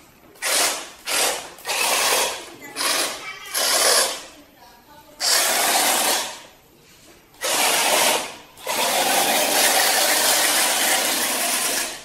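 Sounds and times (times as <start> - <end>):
small electric motors whirring: 0.4 - 4.3, 7.4 - 12.0.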